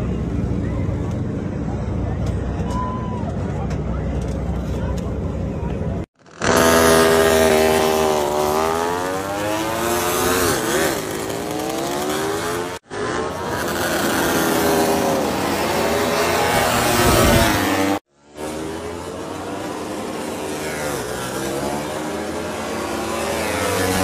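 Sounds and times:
racing motorcycles passing: 6.0 - 24.0.

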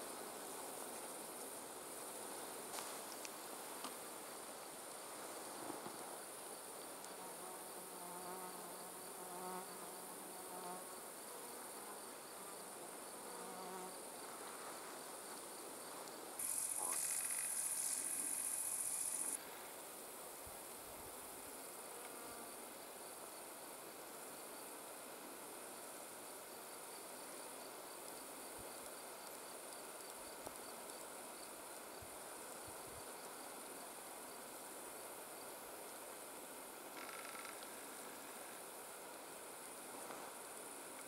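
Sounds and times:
flying insect buzzing: 5.5 - 15.0, 16.4 - 19.4, 36.9 - 38.8
crickets chirring: 11.8 - 19.6, 26.5 - 41.0
loud high-pitched insect chirr: 16.4 - 19.4, 37.0 - 37.6.

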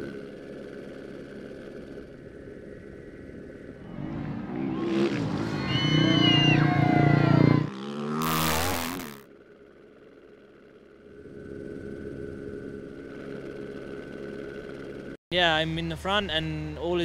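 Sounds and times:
motorcycle engine passing: 3.8 - 9.2
crowd shouting and cheering: 5.4 - 7.7.

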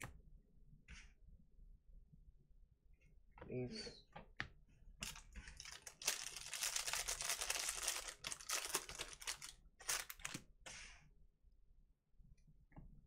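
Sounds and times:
plastic wrapper crinkling: 5.0 - 10.5.

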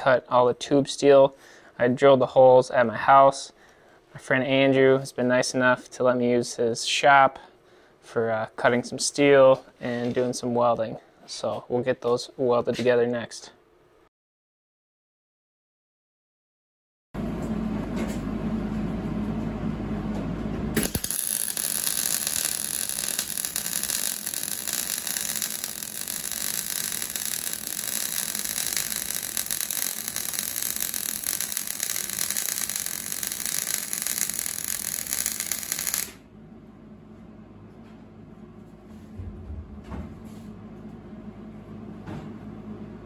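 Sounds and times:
welding arc crackling: 20.8 - 36.2.

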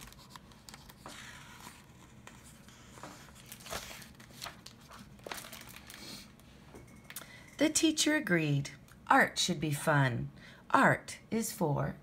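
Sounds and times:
book pages rustling: 0.0 - 6.3.

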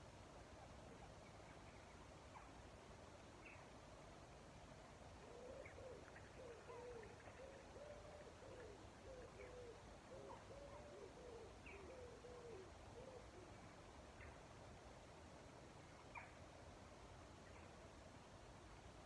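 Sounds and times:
pigeon cooing: 5.2 - 13.6.

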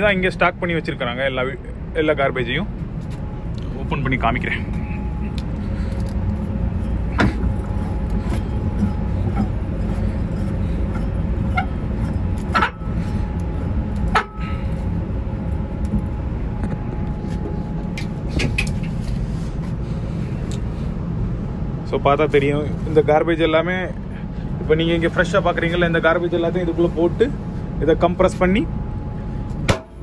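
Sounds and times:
ventilation blowers droning: 0.0 - 30.0
metal knocks and clanks: 6.8 - 13.1.

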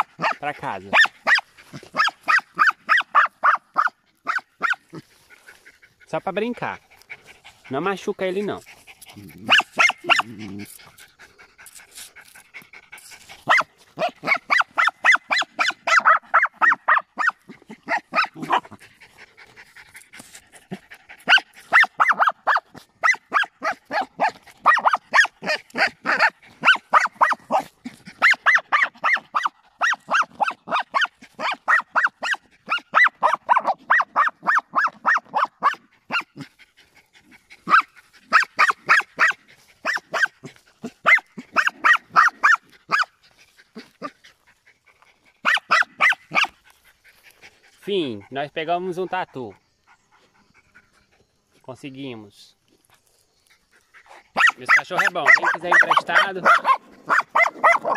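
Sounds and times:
small dog yapping: 0.0 - 5.0, 9.1 - 10.9, 11.9 - 19.9, 20.6 - 36.5, 37.6 - 44.3, 45.4 - 46.6, 54.0 - 57.9.

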